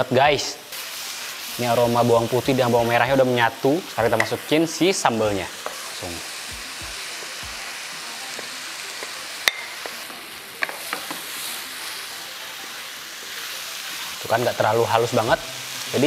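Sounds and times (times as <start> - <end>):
paste sizzling in hot oil: 0.0 - 16.0
spatula tapping frying pan: 4.1 - 4.5, 5.6 - 5.8, 8.3 - 11.3.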